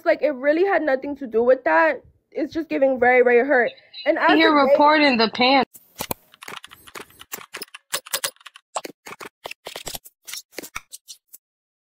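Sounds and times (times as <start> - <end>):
computer keyboard typing: 6.1 - 10.0.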